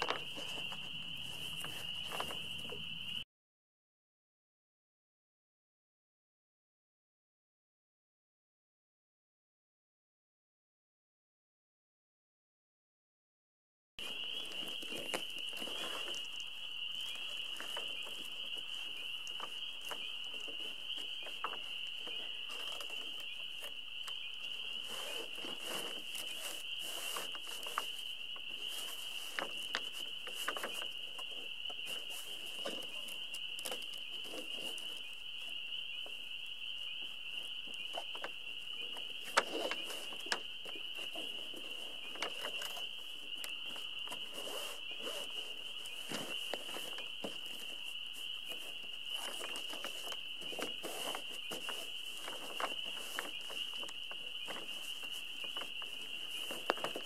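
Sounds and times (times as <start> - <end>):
sail crinkling and rustling: 0.0 - 3.2, 14.0 - 57.0
steady high-pitched hiss: 14.0 - 57.0.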